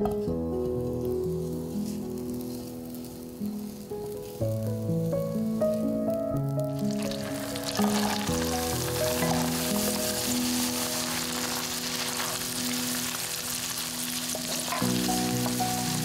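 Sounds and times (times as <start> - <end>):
onions sizzling in frying pan: 0.0 - 16.0
wooden spatula stirring: 6.8 - 16.0.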